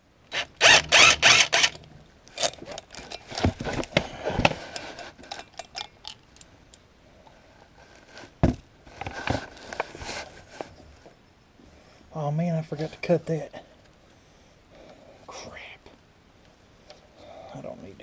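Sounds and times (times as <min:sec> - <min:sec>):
small metallic clicks and clinks: 0:04.8 - 0:06.9.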